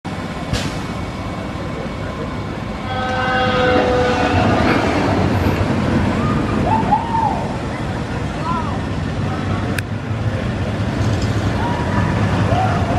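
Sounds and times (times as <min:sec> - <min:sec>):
roller coaster rumble: 0:00.1 - 0:12.9
roller coaster whine: 0:00.1 - 0:12.9
people screaming: 0:06.2 - 0:07.9, 0:11.4 - 0:12.9.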